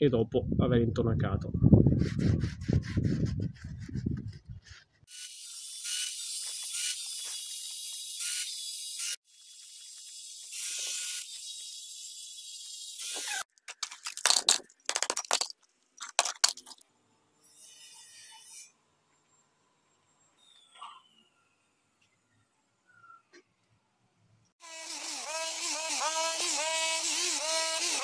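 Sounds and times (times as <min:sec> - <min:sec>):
hand tool scraping plaster: 0:02.0 - 0:05.1
angle grinder on wall: 0:05.0 - 0:13.5, 0:24.6 - 0:28.0.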